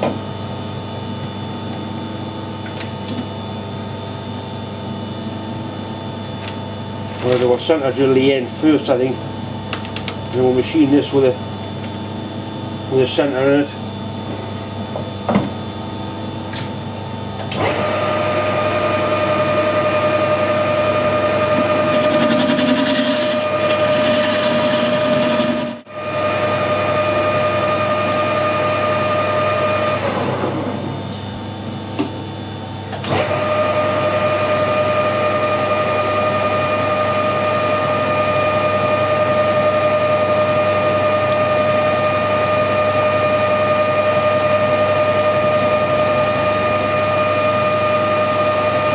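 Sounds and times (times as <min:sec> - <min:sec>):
lathe gear whine: 0:00.0 - 0:48.9
motor hum: 0:04.9 - 0:48.9.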